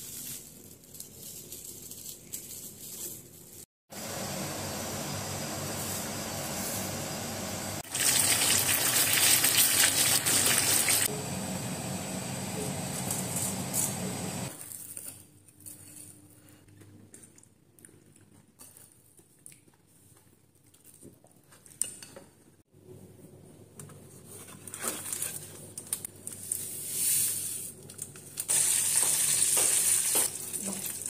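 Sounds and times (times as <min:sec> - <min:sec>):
hot oil sizzling: 0:04.0 - 0:11.1, 0:28.5 - 0:31.0.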